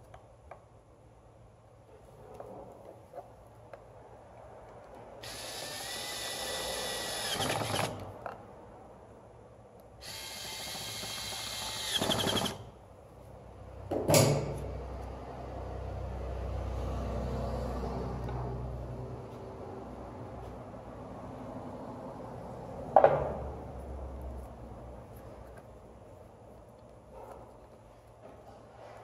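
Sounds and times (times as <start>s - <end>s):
power drill driving screws: 5.2s - 8.1s, 10.0s - 12.6s.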